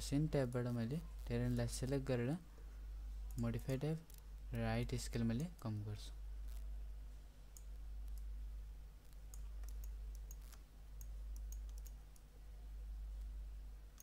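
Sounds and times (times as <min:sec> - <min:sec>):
low electrical hum: 0:00.0 - 0:14.0
computer mouse clicks: 0:07.5 - 0:08.3, 0:09.0 - 0:12.3.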